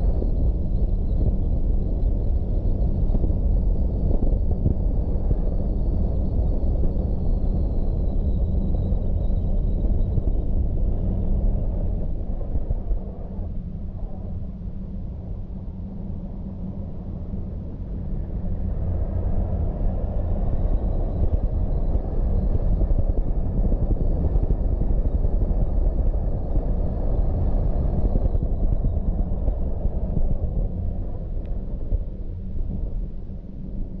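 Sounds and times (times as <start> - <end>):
car engine and tyre rumble: 0.0 - 34.0.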